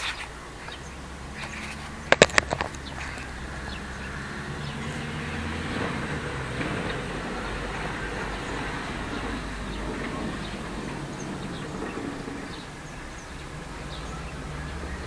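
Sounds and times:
distant road traffic rumble: 0.0s - 15.0s.

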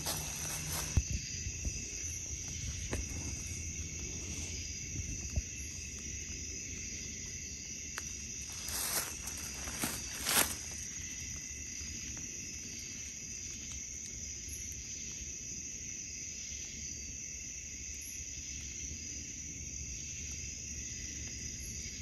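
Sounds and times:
footsteps in dry leaves: 0.0s - 1.0s, 8.0s - 13.7s
night insects trilling: 0.0s - 22.0s.

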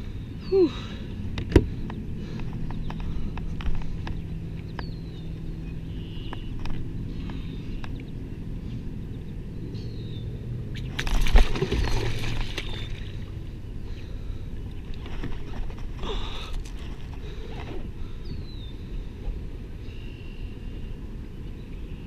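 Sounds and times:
water splashing: 10.7s - 13.4s.

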